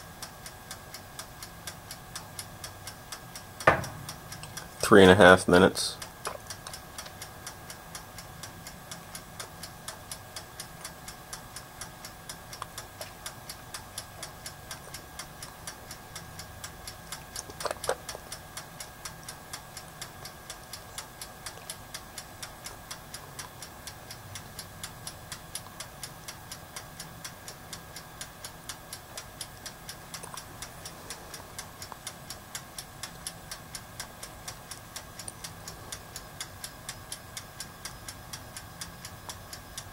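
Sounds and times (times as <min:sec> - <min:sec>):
mechanical timer ticking: 0:00.0 - 0:39.9.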